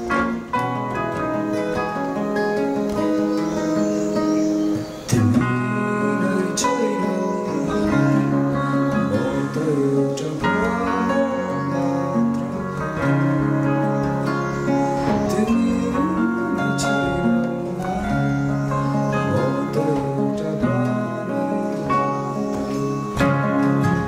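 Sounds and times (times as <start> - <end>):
acoustic guitars and keyboard playing: 0.0 - 24.0
man singing: 5.1 - 24.0.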